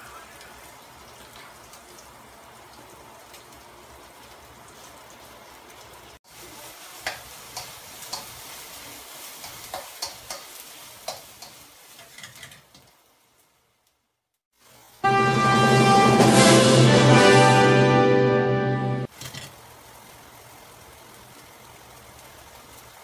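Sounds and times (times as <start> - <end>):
beef sizzling in a wok: 0.0 - 15.1, 19.0 - 23.0
tongs scraping a wok: 11.1 - 12.8.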